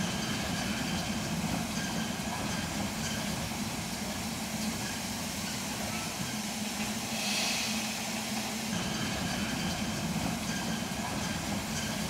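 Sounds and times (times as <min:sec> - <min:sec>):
steam locomotive low drone: 0:00.0 - 0:12.0
steam hissing: 0:05.0 - 0:09.7.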